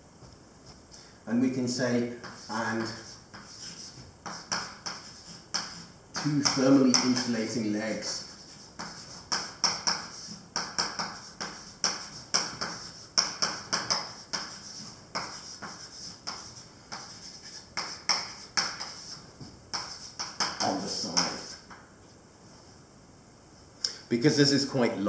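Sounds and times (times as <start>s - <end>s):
chalk tapping and scraping on blackboard: 2.1s - 21.8s.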